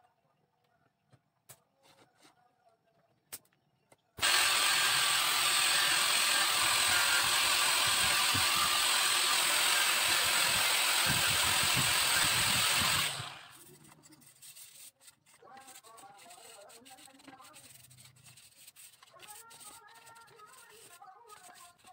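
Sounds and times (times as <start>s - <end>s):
angle grinder sanding whine: 4.2s - 13.6s.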